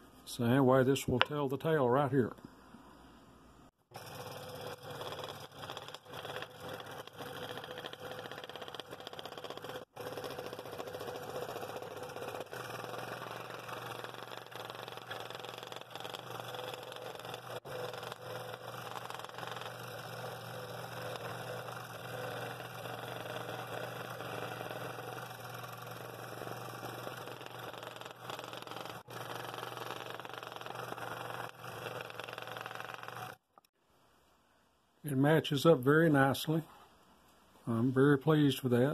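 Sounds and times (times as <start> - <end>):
scroll saw cutting wood: 3.9 - 33.7.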